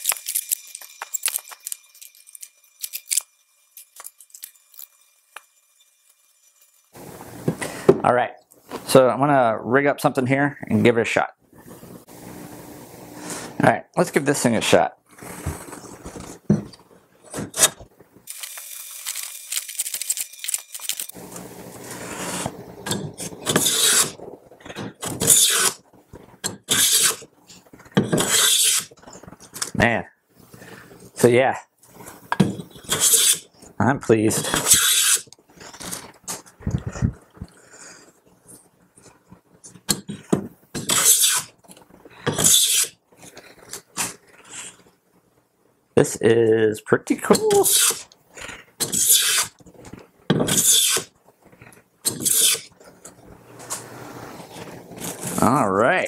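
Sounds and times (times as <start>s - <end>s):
hand plane scraping wood: 23.2s - 24.2s, 26.7s - 27.2s, 28.1s - 28.9s, 40.8s - 41.5s, 50.3s - 52.7s
hand plane shaving wood: 23.5s - 24.2s, 50.5s - 51.1s, 52.1s - 52.7s.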